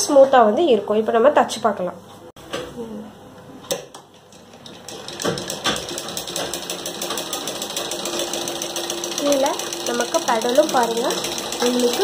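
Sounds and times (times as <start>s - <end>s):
treadle sewing machine clattering: 4.3s - 12.0s.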